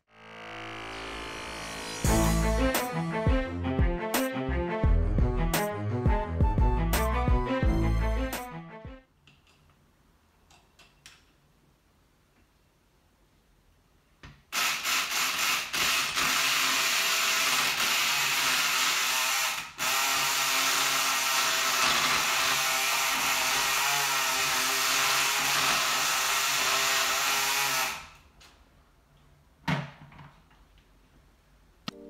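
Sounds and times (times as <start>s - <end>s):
electric pick gun buzzing: 14.5s - 28.2s.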